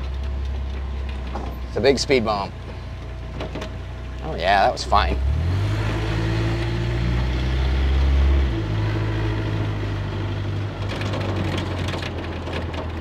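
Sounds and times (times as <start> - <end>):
light rattles and clicks: 0.0 - 4.2, 10.8 - 13.0
car engine humming: 0.0 - 13.0.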